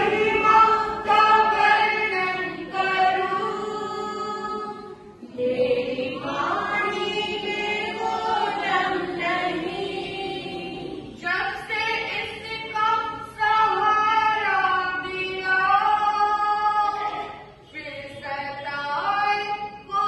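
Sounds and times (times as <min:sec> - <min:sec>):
women singing long notes: 0:00.0 - 0:11.2.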